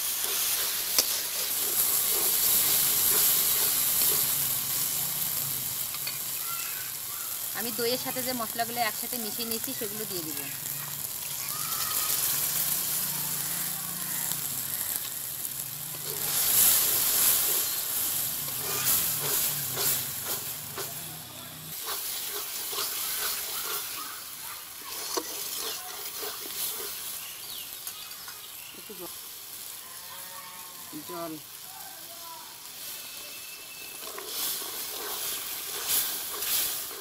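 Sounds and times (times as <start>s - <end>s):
paste sizzling in hot oil: 0.0s - 37.0s
metal spatula scraping pan: 15.9s - 21.1s, 21.7s - 24.0s, 24.8s - 27.1s.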